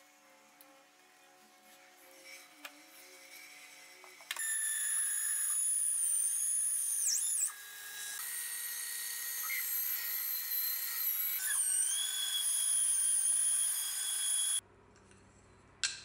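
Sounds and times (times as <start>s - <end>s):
bandsaw cutting wood: 2.2s - 14.6s.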